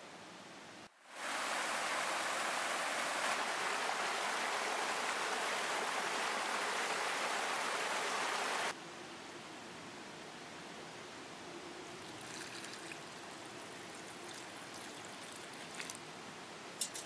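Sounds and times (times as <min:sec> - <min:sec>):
mountain stream rushing over rocks: 0:01.0 - 0:08.8, 0:11.9 - 0:17.0.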